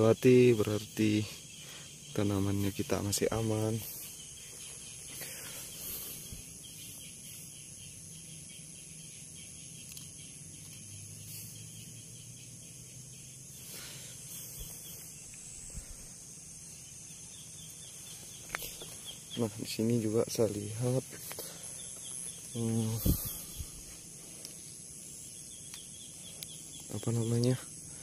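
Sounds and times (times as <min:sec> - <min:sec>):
insects chirping: 0:00.0 - 0:28.0
faint rustles: 0:17.7 - 0:27.6.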